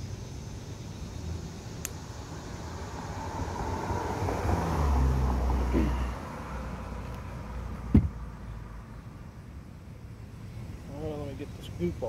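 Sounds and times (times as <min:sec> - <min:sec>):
vehicle engine passing by: 0:02.2 - 0:08.9.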